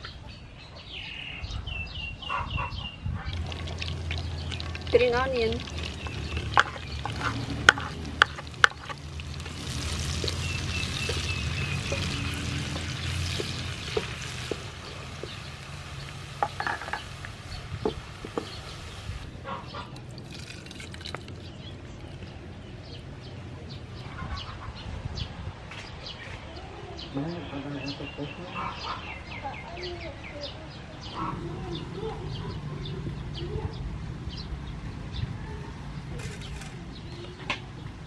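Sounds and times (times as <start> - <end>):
onion sizzling in oil: 3.3 - 19.4.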